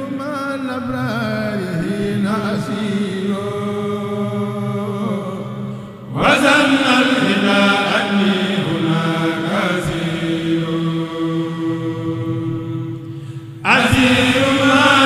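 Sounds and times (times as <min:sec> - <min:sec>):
voice chanting long notes: 0:00.0 - 0:15.0
steady drone: 0:03.4 - 0:15.0.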